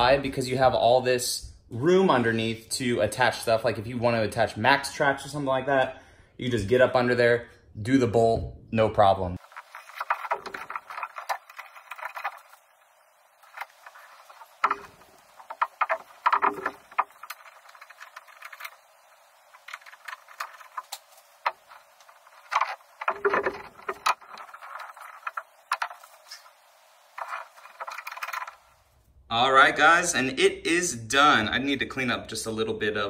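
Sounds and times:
fast chirpy clicks and rattles: 0:09.4 - 0:29.0.

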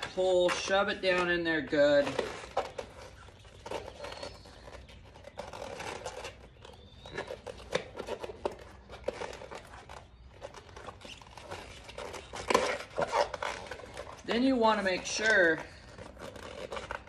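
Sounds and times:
rubber tire rubbing on rim: 0:00.0 - 0:17.0.

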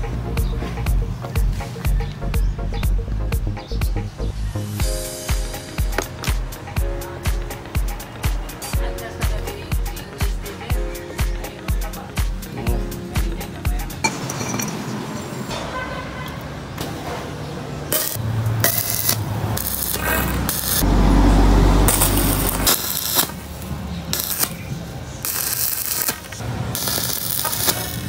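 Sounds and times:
steel pipes clinking on concrete: 0:14.0 - 0:16.4
arc welding crackling and sizzling: 0:17.9 - 0:28.0.

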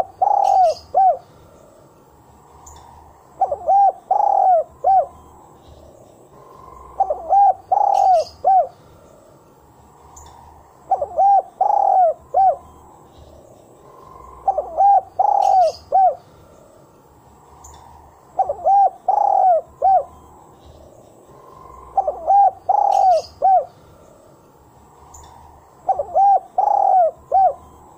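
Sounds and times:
dove cooing: 0:00.0 - 0:01.3, 0:03.4 - 0:05.3, 0:06.4 - 0:08.8, 0:10.8 - 0:12.8, 0:13.9 - 0:16.3, 0:17.7 - 0:20.3, 0:21.4 - 0:23.8, 0:25.8 - 0:27.8.

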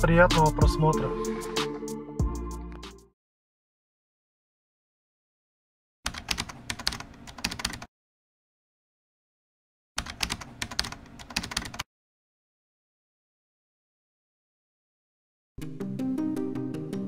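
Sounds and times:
rapid keyboard key clicks: 0:06.1 - 0:07.9, 0:10.0 - 0:11.8.

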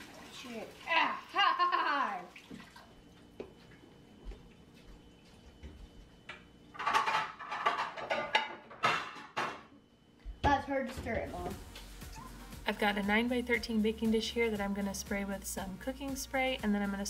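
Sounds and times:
water running at sink: 0:00.0 - 0:06.4.

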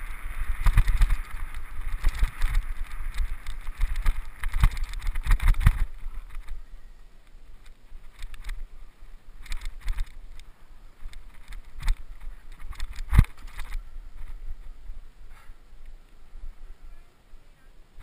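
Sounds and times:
bike rattling and knocking: 0:00.0 - 0:06.6, 0:07.6 - 0:08.7, 0:09.4 - 0:10.4, 0:11.0 - 0:14.4
wind buffeting microphone: 0:00.0 - 0:06.9.

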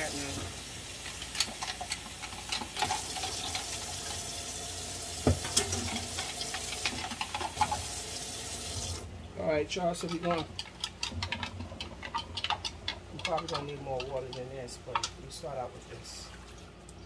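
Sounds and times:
meat sizzling in a skillet: 0:00.0 - 0:09.0.

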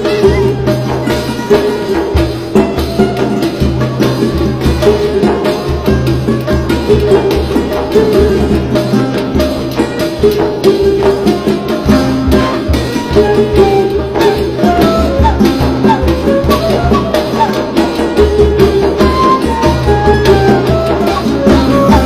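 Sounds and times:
background music with drum beat: 0:00.0 - 0:22.0.

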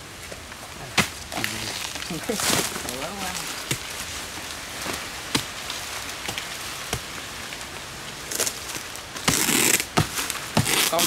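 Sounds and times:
palm trunk tearing: 0:08.2 - 0:11.0.

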